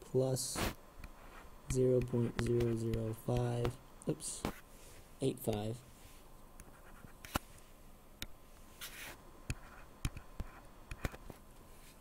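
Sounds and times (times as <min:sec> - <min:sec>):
stylus tapping on tablet: 0:01.7 - 0:03.8.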